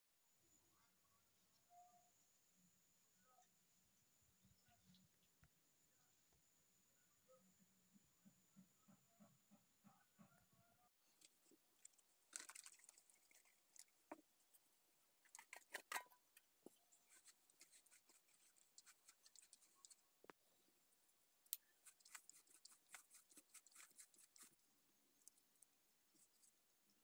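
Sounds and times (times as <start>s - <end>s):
hand mixing in plastic bowl: 11.1s - 14.6s, 15.2s - 20.2s, 21.8s - 24.6s.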